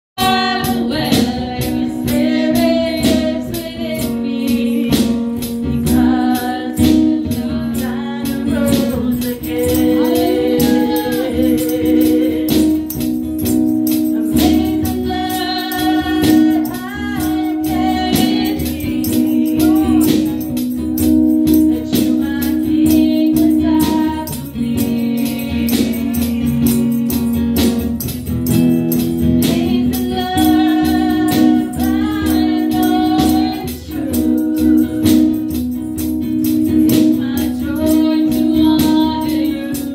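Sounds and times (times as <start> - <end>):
woman singing into a microphone: 0.2 - 27.7, 29.2 - 39.9
steady percussion beat: 0.2 - 39.9
backing singers: 5.9 - 12.9.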